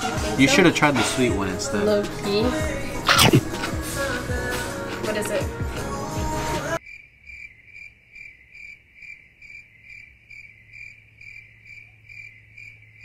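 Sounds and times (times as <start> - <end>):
crickets chirping: 6.8 - 13.0.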